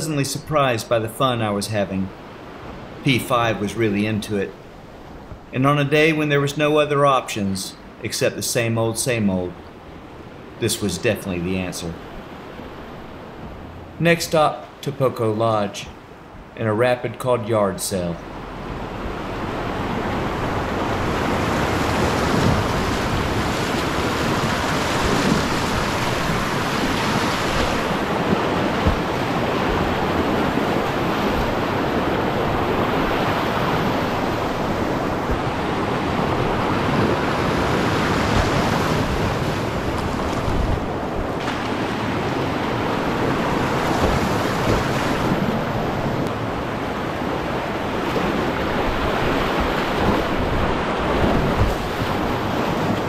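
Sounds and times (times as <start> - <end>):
whitewater rapids rushing: 18.9 - 53.0
paddle splashes: 19.3 - 53.0.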